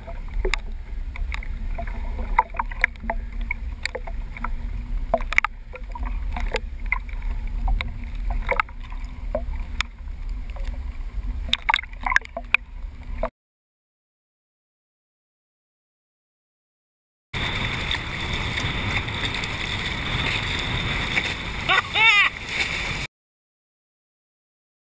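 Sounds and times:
small splashes and knocks: 0.0 - 13.3
small waves lapping against board: 0.0 - 13.3, 17.4 - 23.1
steady low rumble: 0.0 - 13.3, 17.4 - 23.1.

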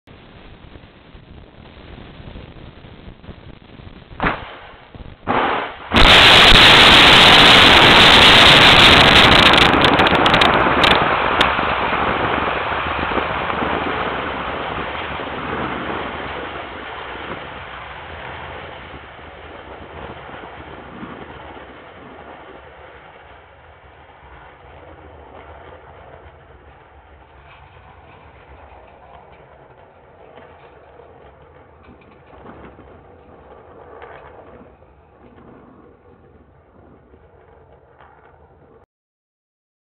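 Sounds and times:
rocket launch roar: 0.1 - 38.9
short bangs: 4.2 - 10.4.

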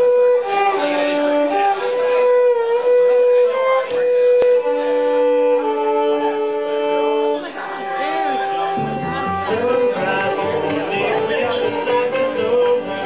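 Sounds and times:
fiddle playing long notes: 0.0 - 13.0
banjo: 7.4 - 13.0
acoustic guitar: 8.4 - 13.0
upright bass: 8.8 - 13.0.

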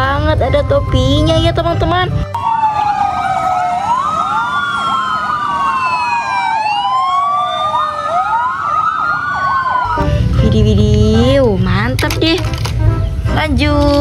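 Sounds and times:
fire engine sirens wailing: 1.5 - 13.3
fast warbling siren yelp: 2.4 - 10.0.

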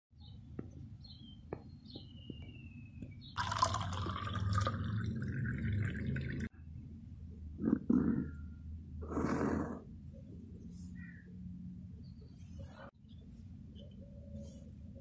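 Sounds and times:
water pouring into glass: 3.4 - 6.5.

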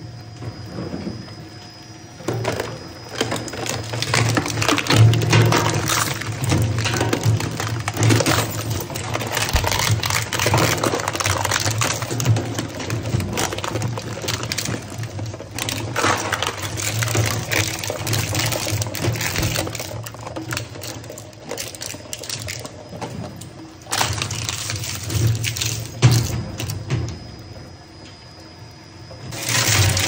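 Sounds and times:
shredder humming: 3.0 - 26.3, 29.3 - 30.0
shredded scrap rattling: 3.2 - 23.1, 23.8 - 26.3, 29.3 - 30.0
cutter discs crunching scrap: 8.1 - 11.8.

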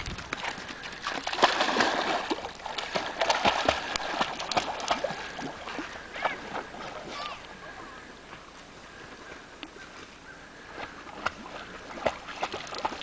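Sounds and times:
dog splashing in water: 0.1 - 7.1, 11.1 - 13.0.

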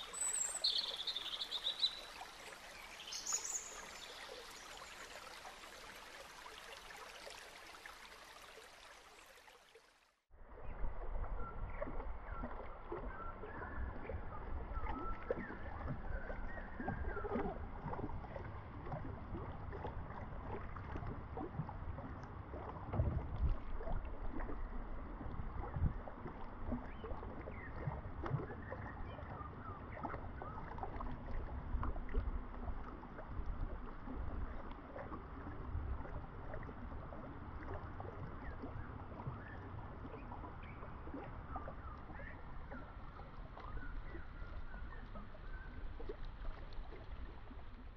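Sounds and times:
water lapping against canoe: 10.4 - 47.9.

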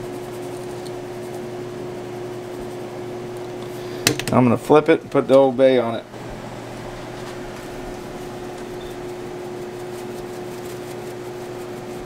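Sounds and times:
fan humming: 0.0 - 12.0.

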